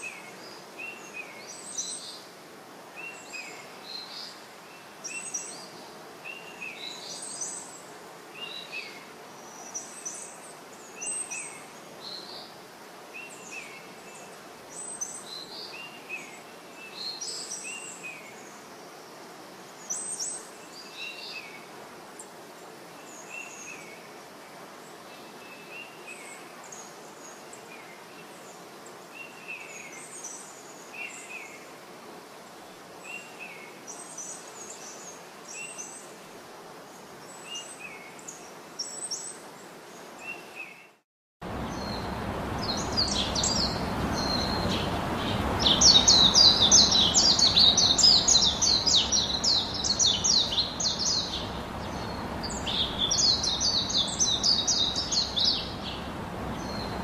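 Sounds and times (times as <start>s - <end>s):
small birds chirping: 40.1s - 57.0s
steady background noise: 41.4s - 57.0s.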